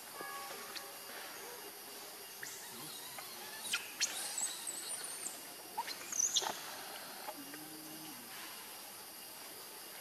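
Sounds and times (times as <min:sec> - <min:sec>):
animal squeaks and chirps: 0:02.4 - 0:06.6
low steady animal call: 0:02.4 - 0:08.5.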